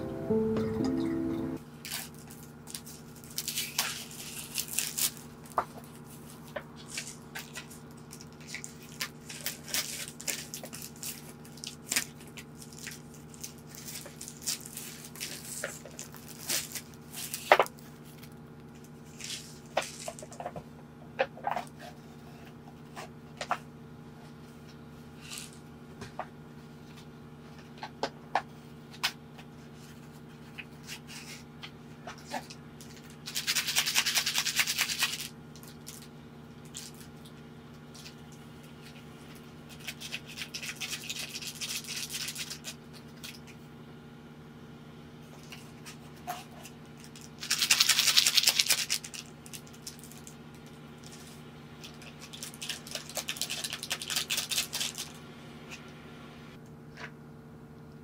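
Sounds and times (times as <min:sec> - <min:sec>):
steady low hum: 0:00.0 - 0:01.6, 0:49.1 - 0:58.0
foil sachets crinkling: 0:01.8 - 0:20.4, 0:32.2 - 0:37.3, 0:38.8 - 0:43.4, 0:47.0 - 0:55.2.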